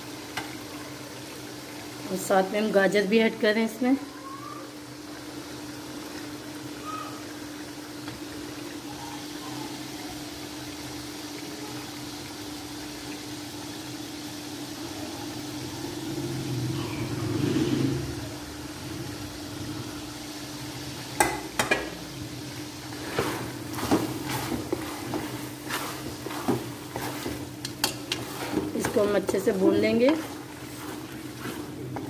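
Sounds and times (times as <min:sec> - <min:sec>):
chicken and vegetables sizzling: 0:00.0 - 0:32.0.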